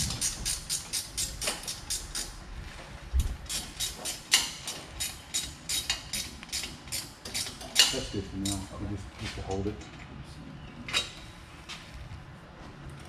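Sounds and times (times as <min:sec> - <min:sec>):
ratchet wrench clicking: 0:00.0 - 0:02.3, 0:03.5 - 0:08.7.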